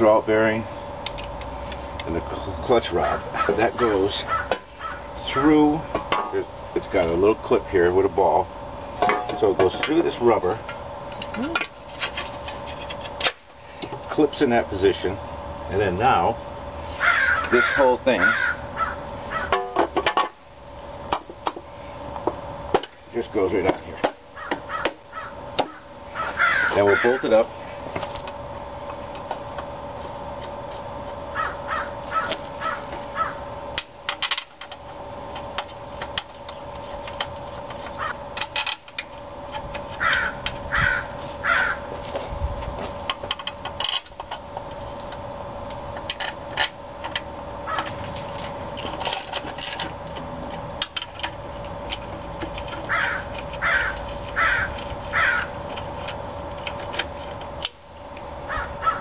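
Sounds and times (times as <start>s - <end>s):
bird calling: 16.9s - 19.5s, 24.4s - 27.3s, 31.3s - 33.4s, 40.0s - 41.9s, 52.9s - 55.5s, 58.5s - 59.0s.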